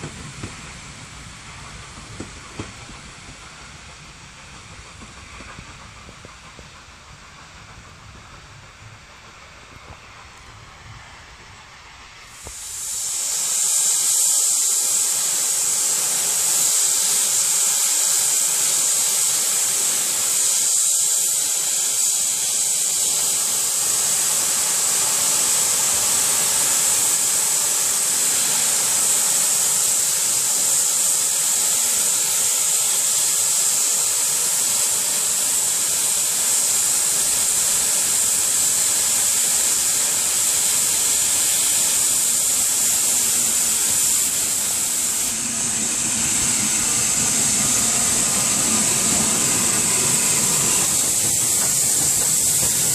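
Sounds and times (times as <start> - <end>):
steam locomotive hissing steam: 0.0 - 52.9.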